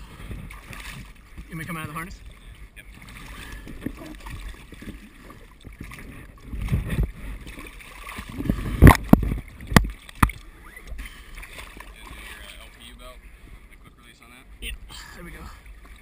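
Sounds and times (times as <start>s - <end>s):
gear thumping on a boat: 0.0s - 12.6s
water lapping against a boat: 0.0s - 16.0s.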